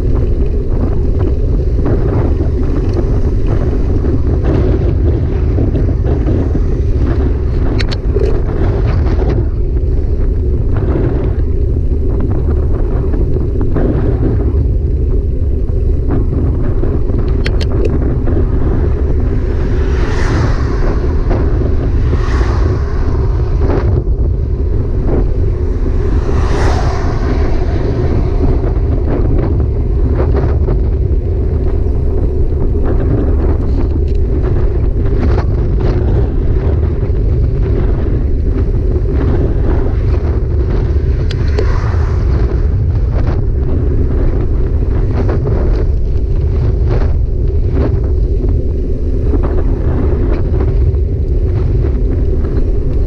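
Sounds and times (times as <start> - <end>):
heavy wind rumble on microphone: 0.0 - 53.0
brief whooshes: 18.8 - 30.2, 40.9 - 43.6.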